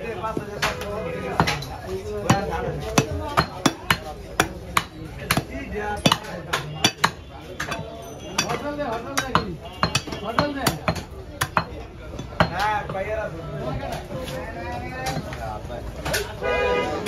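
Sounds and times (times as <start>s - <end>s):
voices talking: 0.0s - 17.0s
cleaver chopping meat on wood: 0.3s - 13.1s.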